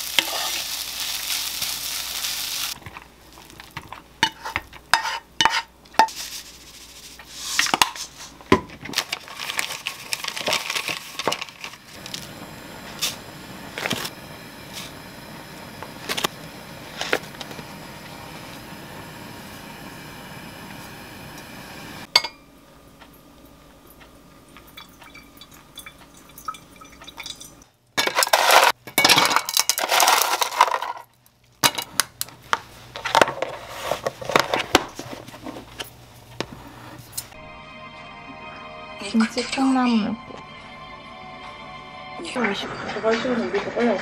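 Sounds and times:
hot water pouring: 9.2 - 22.1, 24.6 - 28.8.

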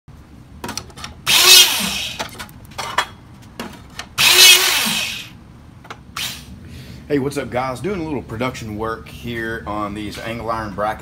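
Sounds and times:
hydraulic hole punch: 1.2 - 2.4, 4.0 - 5.4.

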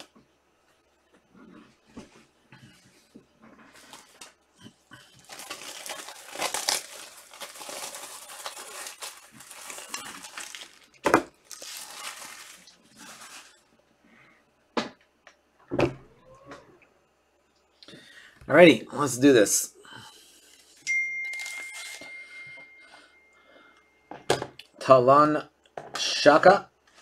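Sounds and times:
plastic wrapping crinkling and tearing: 3.7 - 13.7, 20.4 - 22.1.

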